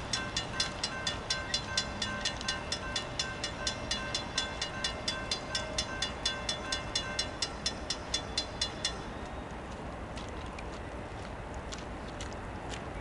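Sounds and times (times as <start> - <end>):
crossing bell ringing rapidly: 0.0 - 9.4.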